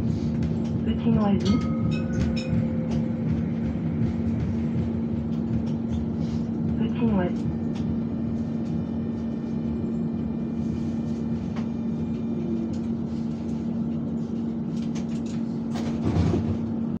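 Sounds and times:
tram running hum: 0:00.0 - 0:17.0
tram knocks: 0:00.4 - 0:08.0.

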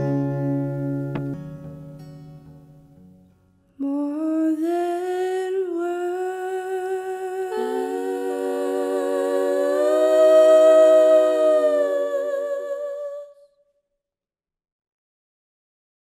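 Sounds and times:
voices humming in harmony: 0:05.8 - 0:13.4.

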